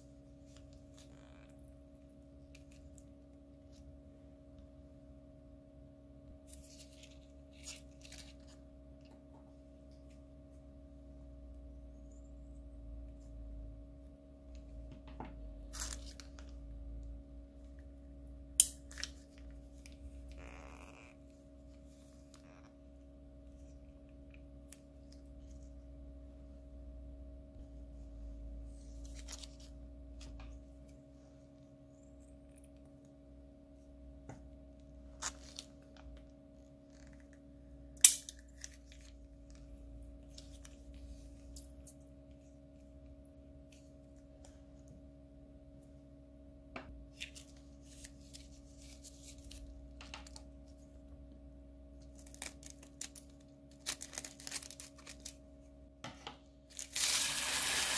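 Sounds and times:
steady low hum: 0:00.0 - 0:57.2
plastic bag crinkling: 0:52.1 - 0:55.4, 0:56.7 - 0:57.9.

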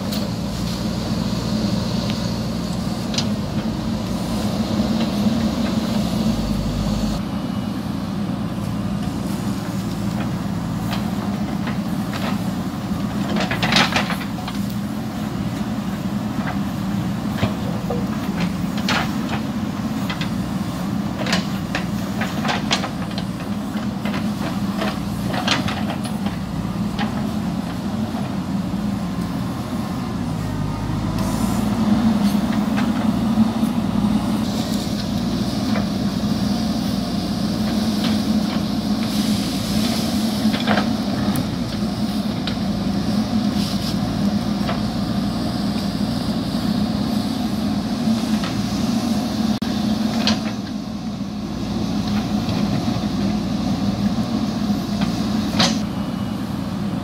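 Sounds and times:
diesel engine running: 0:00.0 - 0:57.0.

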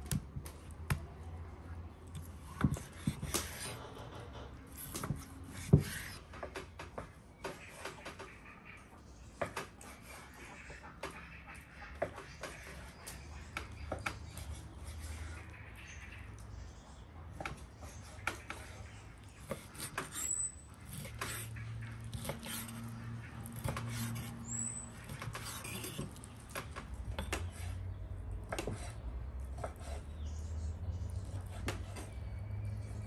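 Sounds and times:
knife chopping on wooden board: 0:02.2 - 0:04.0, 0:04.7 - 0:08.0, 0:19.4 - 0:21.5, 0:22.1 - 0:22.9, 0:23.5 - 0:27.6.

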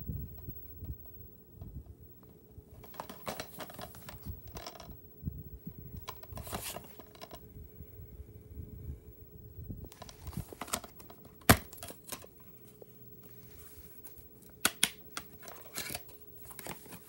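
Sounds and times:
faint steady hum: 0:00.0 - 0:17.0
plastic case clicking and scraping: 0:02.8 - 0:04.9, 0:06.0 - 0:07.4, 0:09.9 - 0:12.3.

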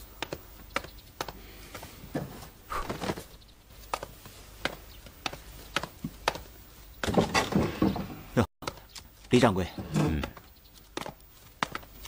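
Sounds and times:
soft rustle: 0:01.6 - 0:07.0.

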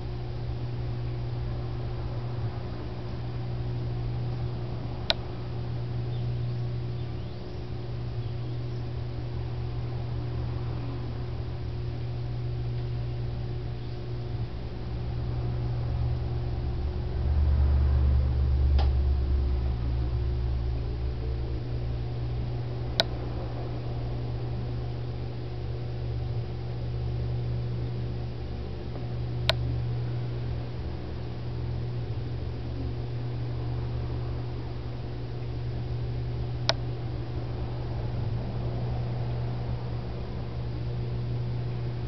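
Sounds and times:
aquarium pumps humming: 0:00.0 - 0:42.0.

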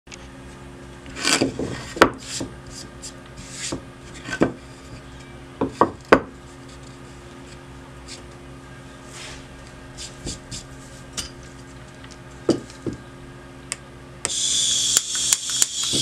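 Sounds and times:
faint steady hum: 0:00.1 - 0:16.0
board scraping on wood: 0:01.1 - 0:05.0
wooden board knocking on workbench: 0:04.4 - 0:04.6, 0:05.6 - 0:06.3, 0:12.5 - 0:13.0.

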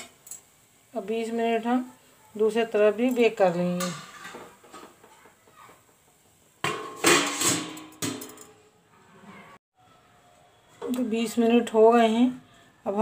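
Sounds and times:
metal lid clattering on pot: 0:03.2 - 0:05.0, 0:06.6 - 0:08.5.

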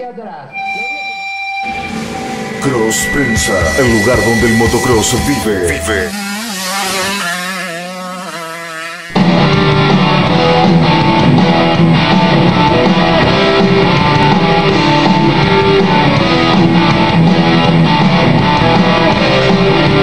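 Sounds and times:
rock music with electric guitar: 0:01.3 - 0:06.1, 0:09.1 - 0:20.0.

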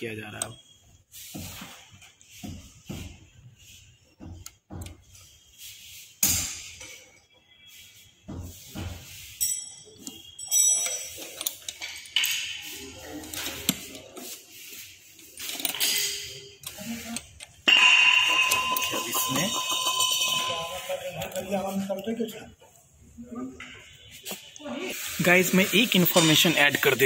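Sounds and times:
metal gearbox parts clicking: 0:15.4 - 0:17.2
sharp knocks: 0:17.6 - 0:20.4
short metallic pings: 0:17.6 - 0:21.4.

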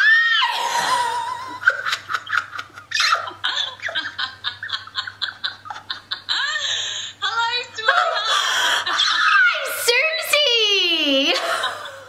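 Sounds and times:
woman shrieking: 0:00.0 - 0:01.4, 0:07.8 - 0:10.5
woman laughing: 0:00.4 - 0:09.6, 0:11.1 - 0:12.0.

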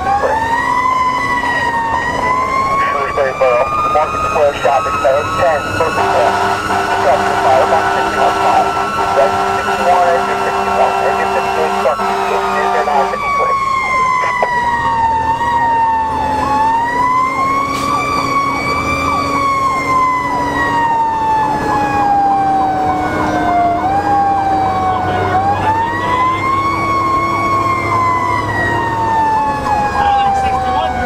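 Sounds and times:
truck engine running: 0:00.0 - 0:15.0
electronic siren wailing: 0:00.0 - 0:31.0
fast siren warble: 0:00.0 - 0:31.0.

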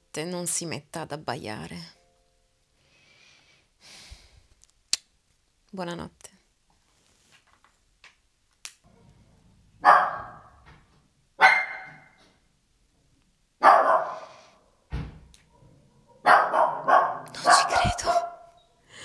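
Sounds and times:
dog barking: 0:09.8 - 0:10.6, 0:11.4 - 0:12.2, 0:13.6 - 0:14.5, 0:15.5 - 0:18.6.

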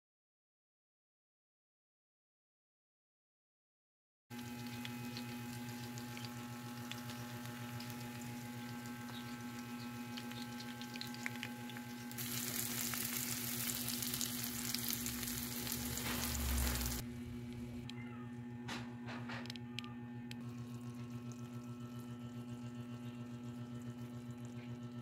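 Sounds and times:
fish frying in oil: 0:04.3 - 0:17.0
steady hum: 0:04.4 - 0:25.0.

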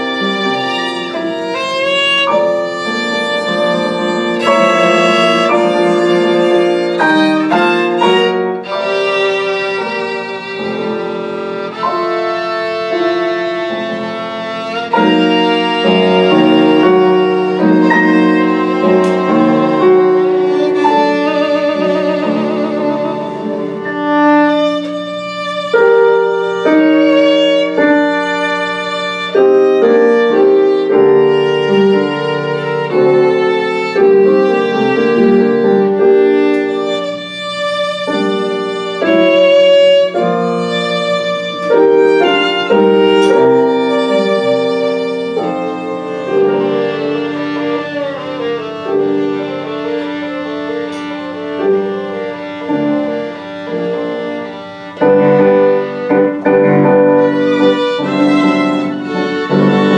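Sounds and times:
sustained accompaniment: 0:00.0 - 0:59.9
violin melody: 0:00.0 - 0:59.9.

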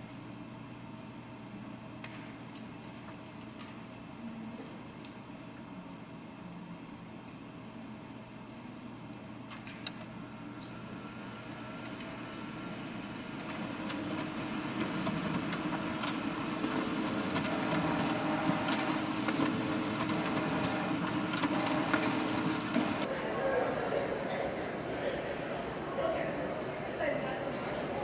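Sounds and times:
photocopier humming: 0:10.5 - 0:23.1
photocopier clicks: 0:17.2 - 0:23.1.

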